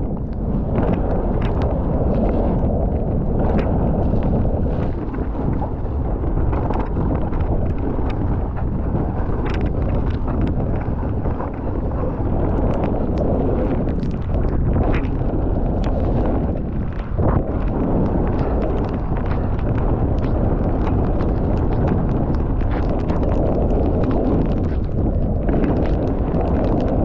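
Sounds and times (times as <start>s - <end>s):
wind rumbling on microphone: 0.0s - 27.0s
bike clicks and rattles: 6.4s - 27.0s.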